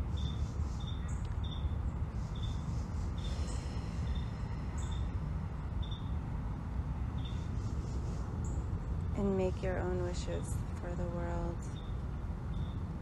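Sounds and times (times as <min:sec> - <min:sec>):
insect chirping: 0:00.0 - 0:06.3, 0:07.1 - 0:09.2, 0:11.6 - 0:13.0
low rumble: 0:00.0 - 0:13.0.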